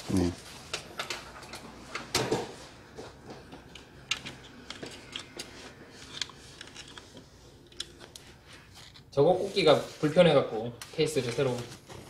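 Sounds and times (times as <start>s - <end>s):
plastic and metal parts clicking: 4.1s - 8.2s.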